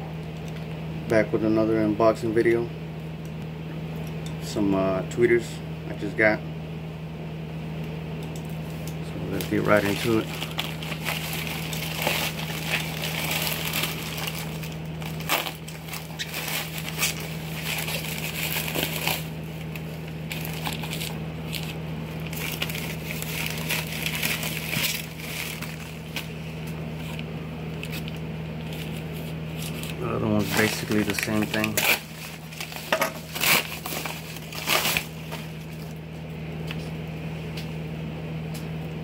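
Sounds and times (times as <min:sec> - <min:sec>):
low hum: 0:05.0 - 0:39.0
plastic mailer crinkling: 0:09.2 - 0:36.0.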